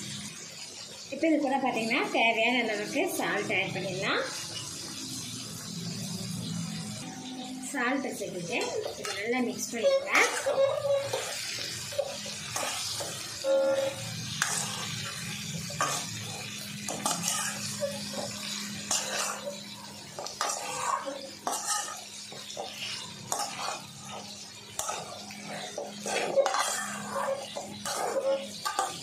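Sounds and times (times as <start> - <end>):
metal spoon scraping a pot: 8.5 - 29.0.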